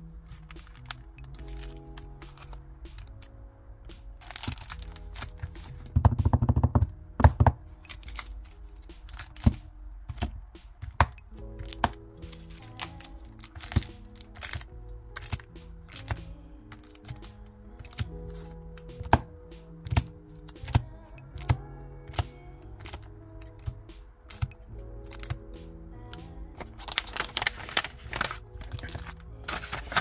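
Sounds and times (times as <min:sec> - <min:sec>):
soft background music: 0:00.0 - 0:30.0
plastic sleeves crinkling: 0:00.2 - 0:03.3, 0:04.2 - 0:05.8, 0:07.8 - 0:18.5, 0:26.6 - 0:30.0.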